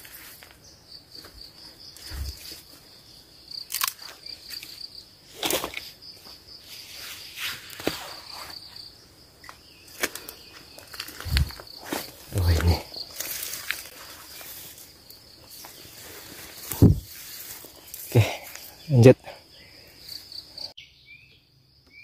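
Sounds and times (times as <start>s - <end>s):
footsteps on dry leaves: 0.0s - 0.6s, 9.9s - 18.8s
high insect trill: 0.0s - 20.8s.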